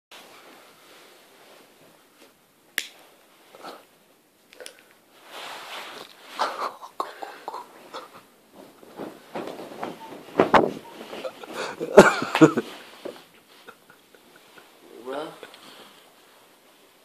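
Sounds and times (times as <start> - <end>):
rustling and breathy sounds: 4.8 - 17.0.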